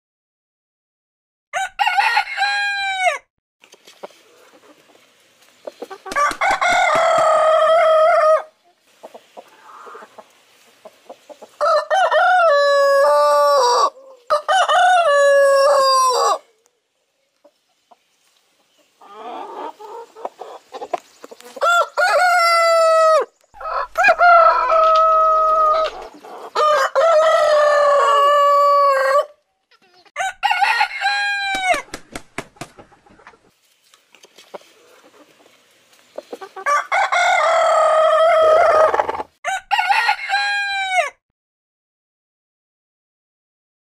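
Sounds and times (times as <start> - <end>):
rooster crowing: 1.6 - 3.3, 6.2 - 8.5, 11.6 - 16.5, 21.6 - 29.4, 30.2 - 31.9, 36.6 - 41.2.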